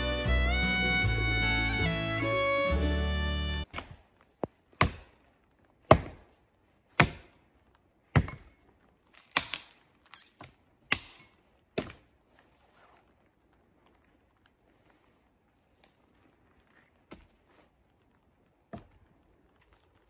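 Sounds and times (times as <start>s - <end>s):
hatchet chopping wood: 4.8s - 5.2s, 5.9s - 6.3s, 7.0s - 7.4s, 8.1s - 8.6s, 9.2s - 9.8s, 10.4s - 12.1s.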